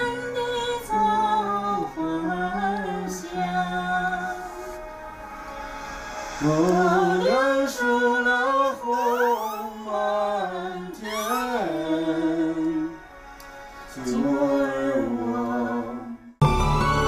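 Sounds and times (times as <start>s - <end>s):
person singing slowly: 6.4s - 12.8s.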